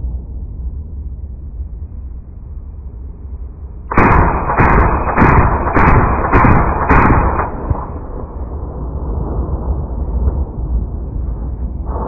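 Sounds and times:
rifle shots: 3.9s - 8.4s.

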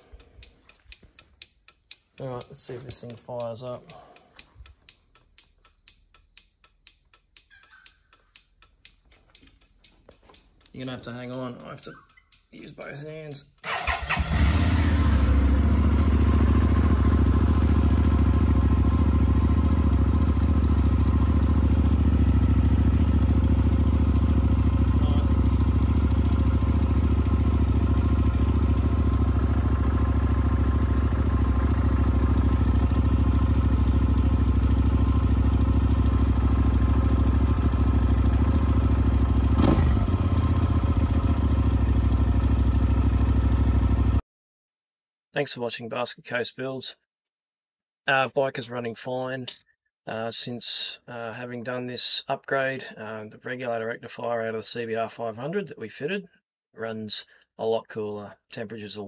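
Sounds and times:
motorcycle engine starting and running: 0.0s - 44.2s.

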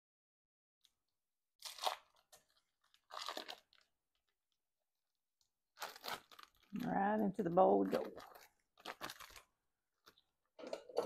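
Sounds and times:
foil wrapper crinkling: 1.6s - 4.6s, 5.7s - 10.7s.

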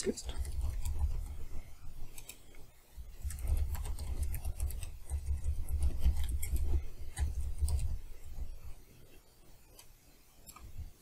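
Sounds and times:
typing on computer keyboard: 0.3s - 1.4s, 3.1s - 8.5s.

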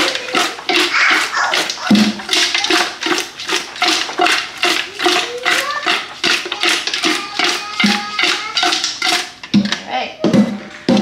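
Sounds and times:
wet slapping and rattling: 0.0s - 11.0s.

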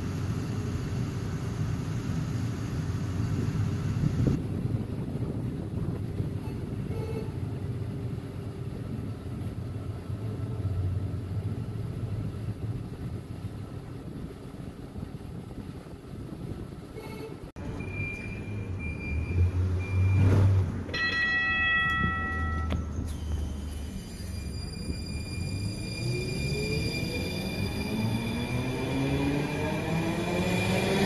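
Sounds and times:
train low rumble: 0.0s - 31.0s
wind noise: 3.2s - 9.5s, 11.9s - 18.1s.

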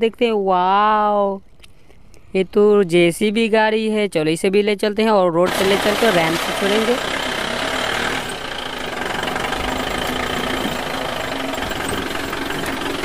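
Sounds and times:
vehicle engine running: 5.5s - 13.0s.

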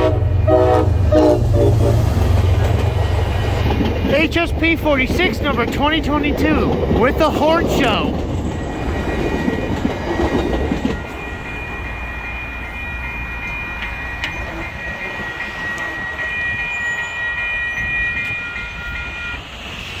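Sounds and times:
train wheel noise: 0.0s - 20.0s
crossing bells ringing: 3.3s - 19.6s.

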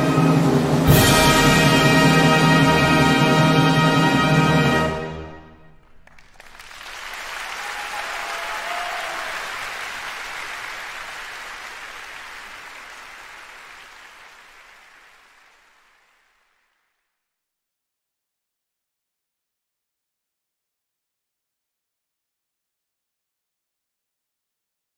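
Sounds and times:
audience applauding: 5.8s - 17.0s.

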